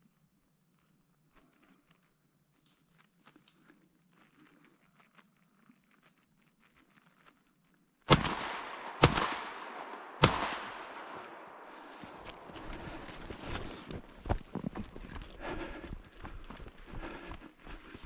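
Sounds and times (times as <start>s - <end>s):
shotgun shots with echo: 8.1s - 13.1s.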